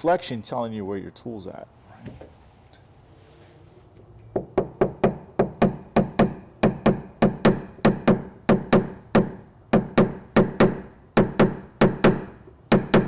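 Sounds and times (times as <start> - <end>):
metal tool tapping car panel: 4.4 - 13.0.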